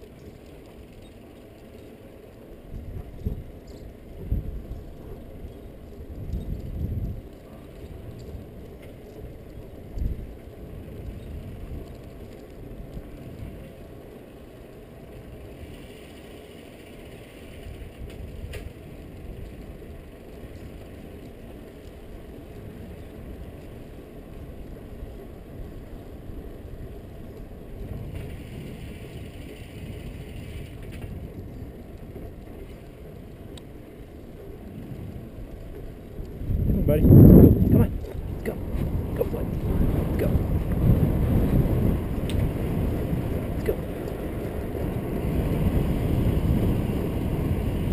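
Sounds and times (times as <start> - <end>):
bicycle tyres rumbling on asphalt: 0.0 - 47.9
wind on microphone: 2.6 - 13.8, 24.4 - 33.6, 34.4 - 47.9.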